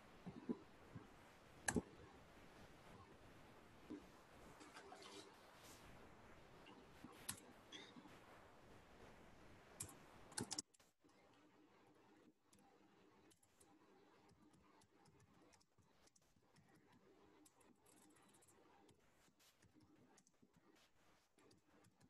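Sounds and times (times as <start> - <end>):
keyboard typing: 9.8 - 10.8, 12.5 - 19.0.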